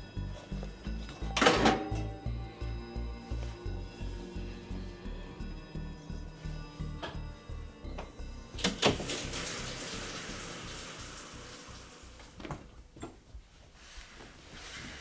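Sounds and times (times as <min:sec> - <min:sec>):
shower water hissing: 0:08.7 - 0:12.4.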